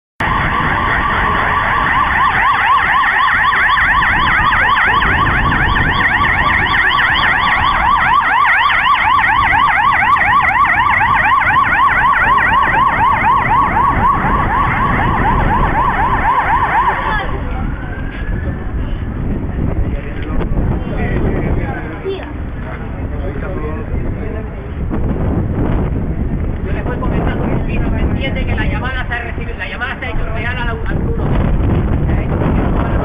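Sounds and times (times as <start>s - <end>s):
emergency vehicle siren yelping: 0.2s - 19.3s.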